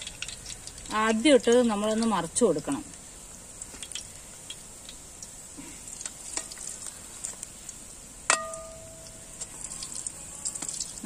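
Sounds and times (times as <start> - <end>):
food sizzling in hot oil: 0.0 - 11.0
metal ladle clinking on pan: 8.3 - 9.2.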